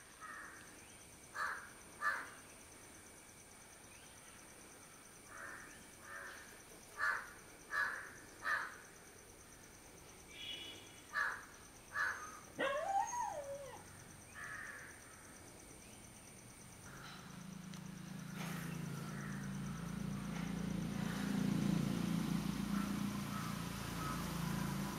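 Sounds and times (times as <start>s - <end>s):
crow cawing: 0.2s - 0.6s, 1.4s - 2.3s, 5.3s - 6.4s, 7.0s - 8.8s, 11.1s - 12.4s, 14.4s - 15.0s, 22.7s - 24.7s.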